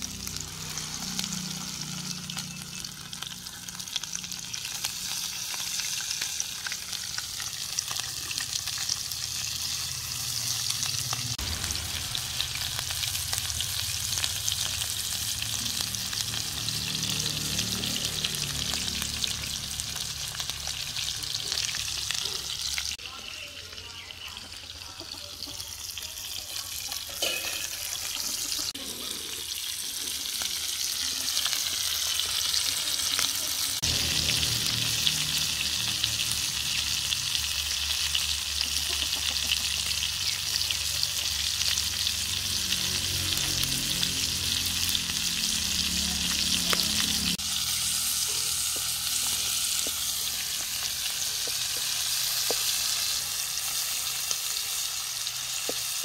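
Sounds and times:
fish sizzling in hot oil: 0:00.0 - 0:56.0
low rumble: 0:11.2 - 0:21.0.

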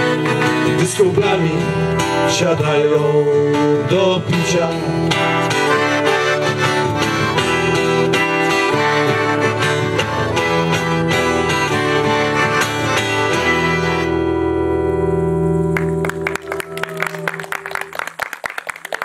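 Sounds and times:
accordion: 0:00.0 - 0:03.4, 0:04.0 - 0:15.0
acoustic guitar: 0:00.0 - 0:17.3
audience clapping: 0:15.7 - 0:19.0.

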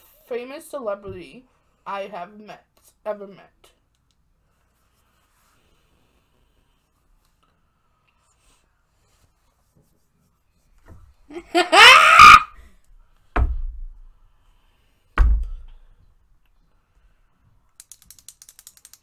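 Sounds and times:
high-pitched shriek of laughter: 0:11.3 - 0:12.6
dull thumps: 0:13.3 - 0:14.1, 0:15.2 - 0:15.9
rapid light clicks: 0:17.8 - 0:19.0.

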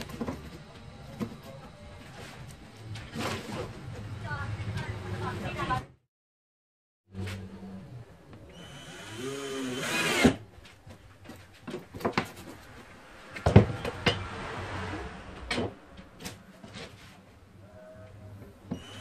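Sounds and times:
cordless drill whining: 0:08.5 - 0:10.4, 0:18.7 - 0:19.0.

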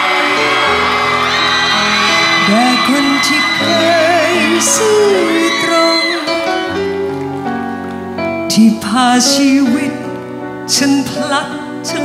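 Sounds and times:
pop backing track: 0:00.0 - 0:12.0
man singing into microphone: 0:02.3 - 0:07.0, 0:08.4 - 0:12.0.

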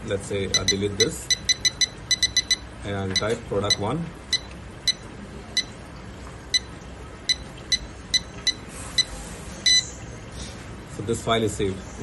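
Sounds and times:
short high electronic beeps: 0:07.3 - 0:10.0.

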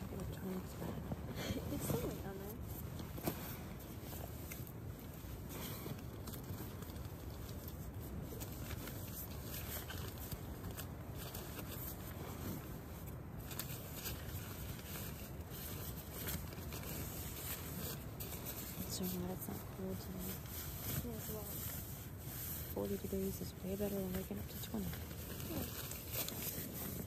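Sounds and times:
nylon rustling and crinkling: 0:00.0 - 0:27.0
small clicks and fabric scrapes: 0:00.0 - 0:27.0.

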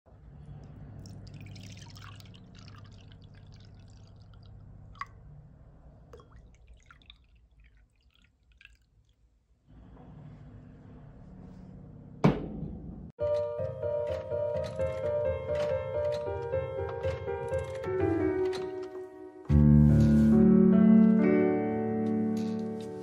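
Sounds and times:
liquid trickling into a glass mug: 0:01.0 - 0:05.2, 0:06.1 - 0:09.2.

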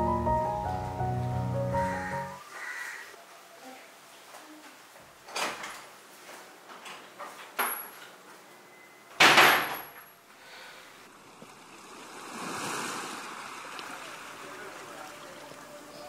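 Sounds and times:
wooden door opening and shutting: 0:05.2 - 0:05.9.

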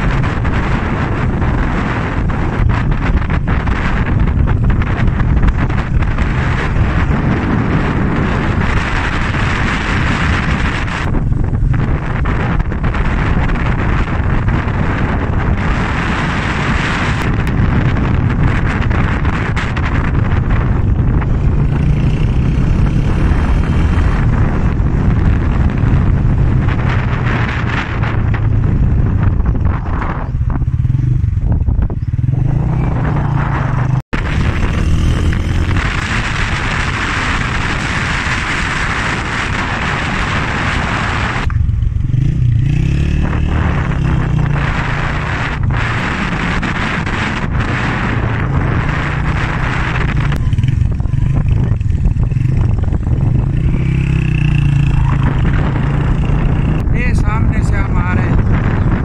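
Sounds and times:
motorcycle engine running: 0:00.0 - 0:59.0
wind rushing over microphone: 0:00.0 - 0:59.0.

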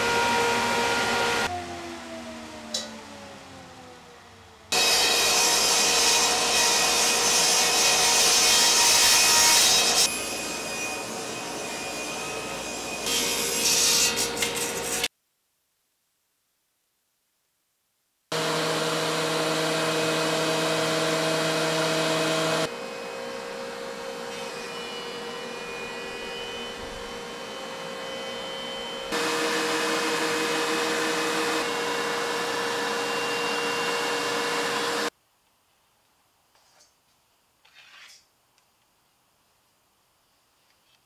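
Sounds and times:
thickness planer whining: 0:00.0 - 0:15.1, 0:18.3 - 0:35.1.

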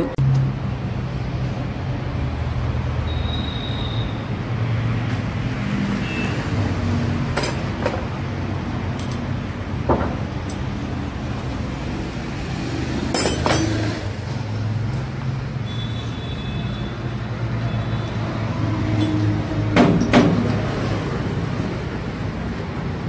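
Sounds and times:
metal clanking of tools: 0:07.3 - 0:08.1, 0:13.1 - 0:14.0, 0:19.0 - 0:20.5.

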